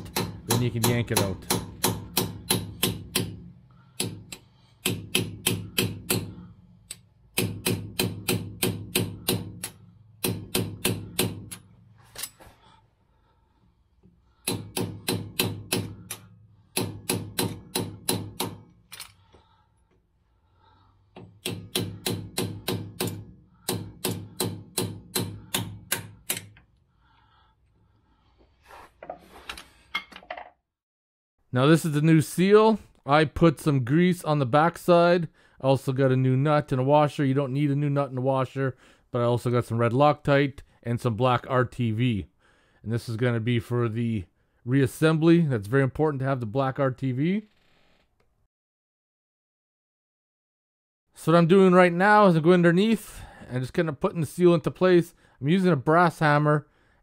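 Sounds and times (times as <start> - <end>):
hammer striking chisel on metal: 0.0 - 11.6, 14.4 - 18.7, 21.2 - 26.6.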